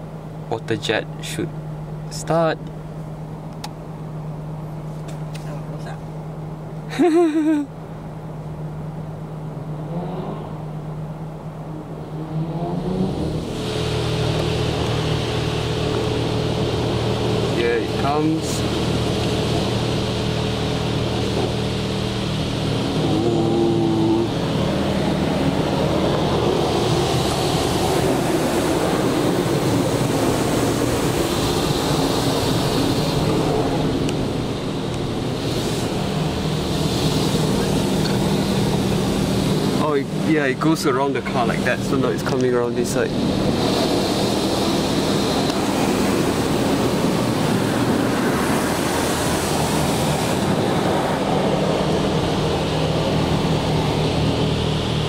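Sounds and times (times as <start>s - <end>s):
low hum: 0.0s - 55.0s
water jets spraying on car: 12.8s - 55.0s.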